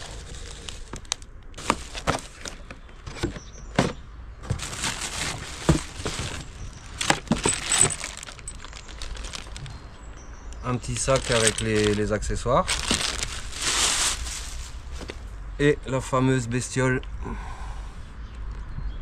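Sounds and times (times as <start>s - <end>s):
plastic packaging crinkling: 0.0s - 2.7s, 4.5s - 10.1s, 10.7s - 15.2s
cardboard box rustling: 0.0s - 9.8s, 10.8s - 15.3s
parts clicking and knocking: 5.6s - 9.8s.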